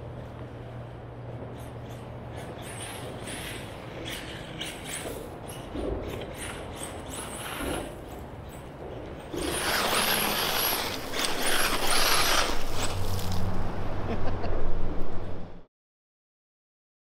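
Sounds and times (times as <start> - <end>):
tyres spinning on dirt: 2.8 - 13.6
electric motor whine: 9.4 - 13.5.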